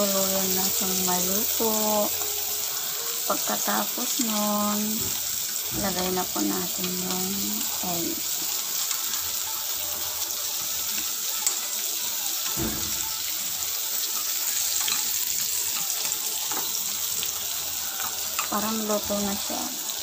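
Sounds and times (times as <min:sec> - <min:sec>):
vegetables sizzling in a wok: 0:00.0 - 0:20.0
chopsticks clicking against pan: 0:14.2 - 0:17.3, 0:17.9 - 0:18.6.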